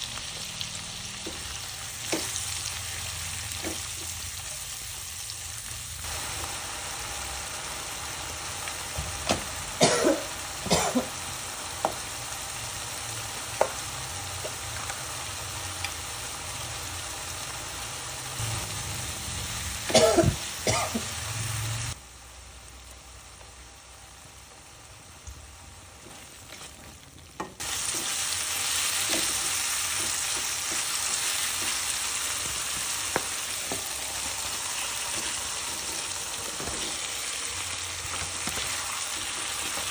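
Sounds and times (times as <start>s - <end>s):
paste sizzling in oil: 27.6s - 39.9s.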